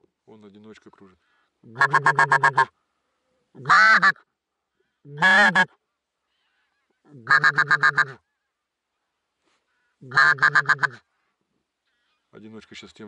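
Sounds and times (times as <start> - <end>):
goose honking: 1.7 - 2.7, 3.6 - 4.2, 5.1 - 5.7, 7.2 - 8.2, 10.0 - 11.0.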